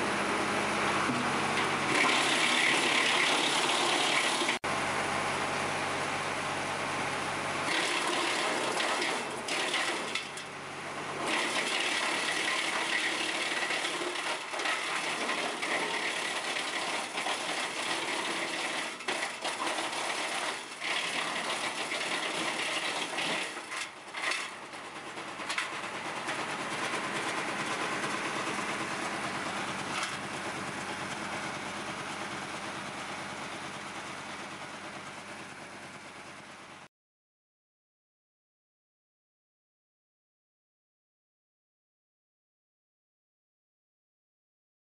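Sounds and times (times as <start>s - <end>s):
wood chipper chipping branches: 0.0s - 6.2s, 6.8s - 35.8s.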